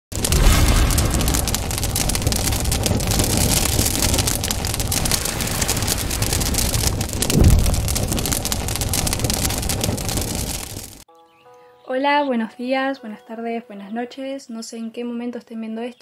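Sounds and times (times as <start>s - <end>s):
dense crackling rushing noise: 0.0s - 11.0s
deep boom: 0.1s - 11.0s.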